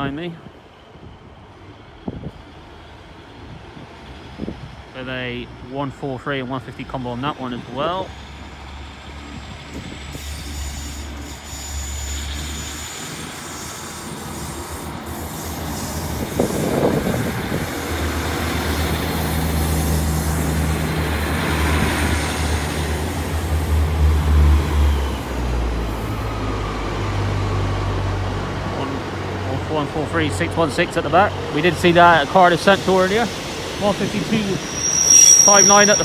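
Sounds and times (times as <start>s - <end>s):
diesel train engines droning: 0.0s - 36.0s
train wheels on rails: 7.8s - 36.0s.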